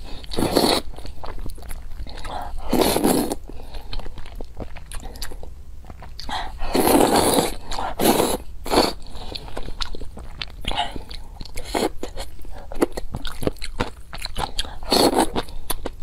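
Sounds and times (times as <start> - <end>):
wet chewing with mouth clicks: 0.0 - 16.0
noodle slurping: 0.3 - 0.9, 2.2 - 3.4, 6.3 - 9.4.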